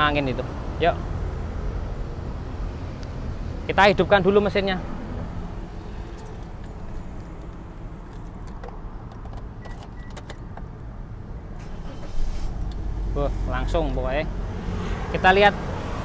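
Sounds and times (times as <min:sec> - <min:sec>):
car keys jangling: 0:06.0 - 0:10.7
car engine starting: 0:11.4 - 0:16.0.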